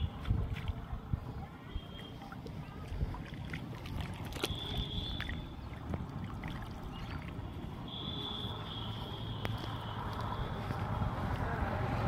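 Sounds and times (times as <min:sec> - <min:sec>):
water splashing and dripping: 0:00.0 - 0:08.0.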